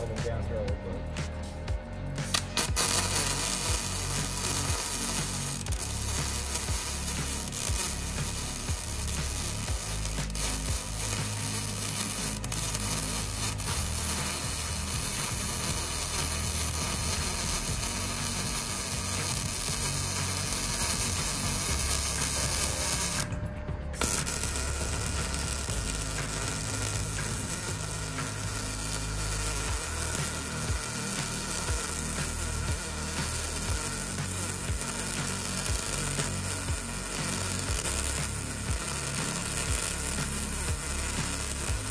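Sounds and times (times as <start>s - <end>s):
welding arc crackling: 2.0s - 41.9s.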